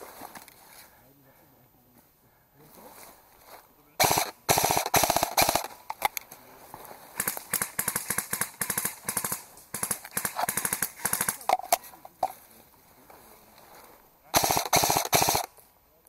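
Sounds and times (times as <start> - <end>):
airsoft guns rapid clicking bursts: 4.0 - 6.1, 7.2 - 11.8, 14.3 - 15.5.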